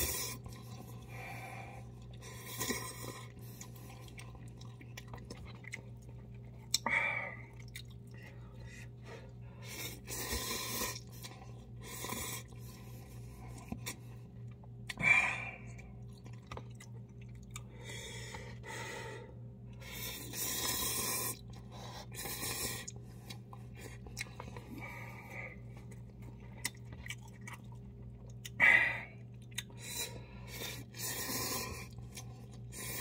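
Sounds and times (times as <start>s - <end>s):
low steady hum: 0.0s - 33.0s
person slurping noodles: 20.0s - 21.4s.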